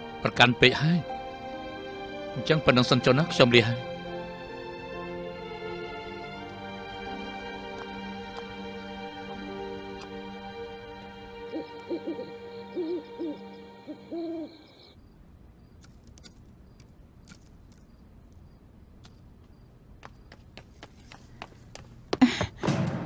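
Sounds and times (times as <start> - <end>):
soft sustained music: 0.0 - 15.0
owl hooting: 11.4 - 15.0.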